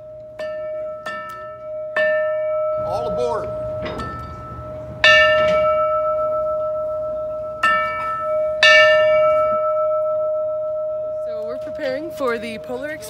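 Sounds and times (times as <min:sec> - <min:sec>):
locomotive bell ringing: 0:00.0 - 0:13.0.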